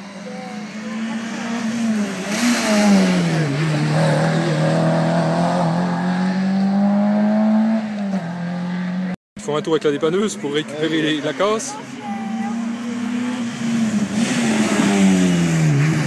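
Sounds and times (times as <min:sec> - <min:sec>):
rally car engine accelerating: 0:00.1 - 0:09.2, 0:12.4 - 0:16.0.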